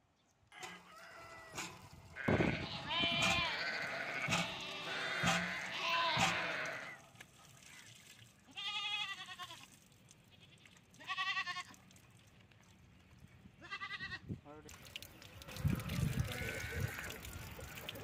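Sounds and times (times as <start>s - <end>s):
goats bleating: 1.0s - 7.0s, 8.5s - 9.6s, 10.4s - 11.8s, 13.6s - 14.2s, 15.5s - 17.8s
sharp knocks: 5.2s - 5.5s.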